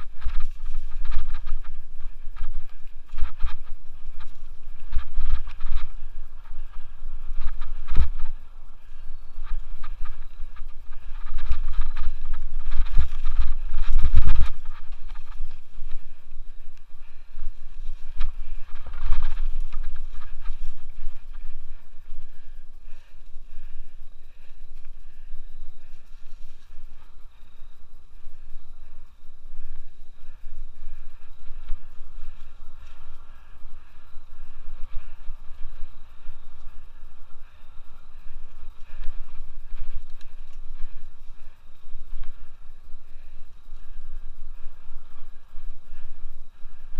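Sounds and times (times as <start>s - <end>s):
bike rattling over bumps: 0.0s - 29.0s
bike tyres rolling on dirt: 0.0s - 46.9s
wind buffeting microphone: 0.0s - 46.9s.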